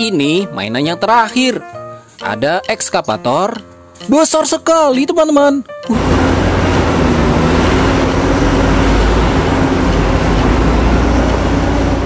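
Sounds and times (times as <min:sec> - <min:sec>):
excavator diesel engine rumbling: 0:05.9 - 0:12.0.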